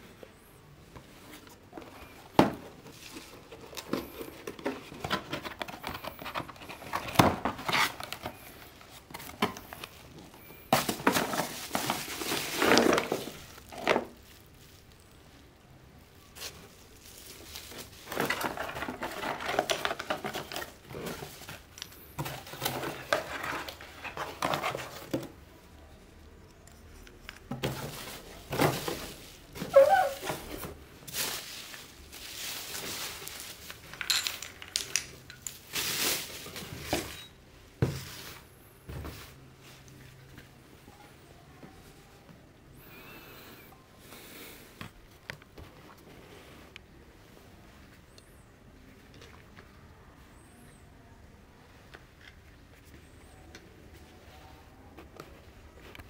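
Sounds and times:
cardboard and bubble wrap rustling: 0:00.2 - 0:25.7, 0:26.7 - 0:41.0.

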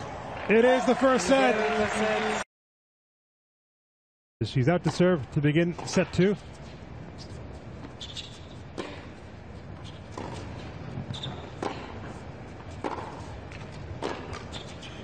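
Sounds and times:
racquets hitting tennis ball: 0:12.8 - 0:14.6.

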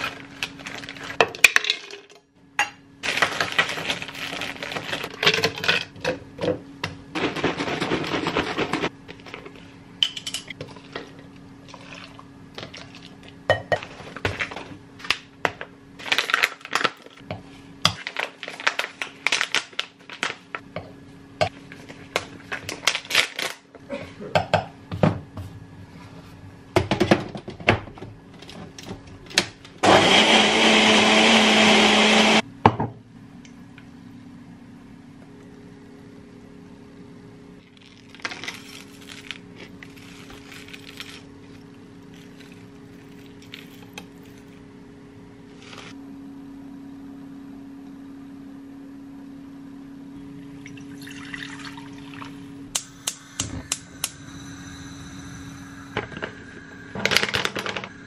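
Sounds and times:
blender running: 0:29.8 - 0:32.5
steady low hum: 0:32.4 - 0:58.0.

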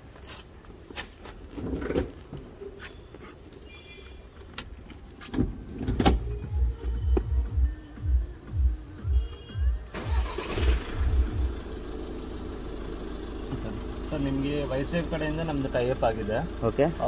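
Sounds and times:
car door and seat clicks: 0:04.5 - 0:06.5
car engine rumbling: 0:04.5 - 0:17.0.

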